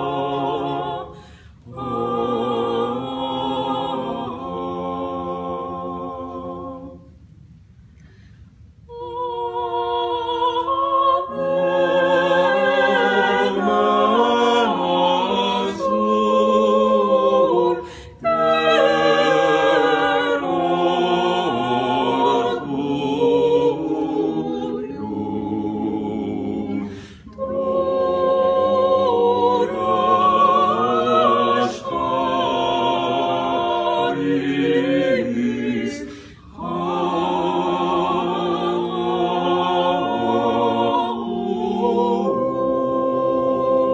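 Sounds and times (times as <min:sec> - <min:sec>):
vocal ensemble singing in harmony: 0:00.0 - 0:43.9.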